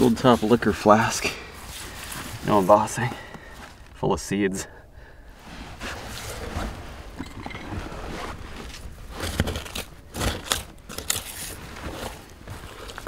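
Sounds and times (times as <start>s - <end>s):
digging scraping and crunching: 5.4s - 13.0s.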